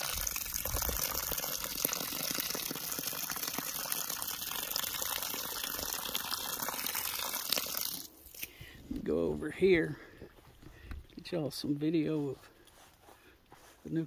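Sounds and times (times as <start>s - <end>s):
hose water splashing into tub: 0.0s - 8.5s.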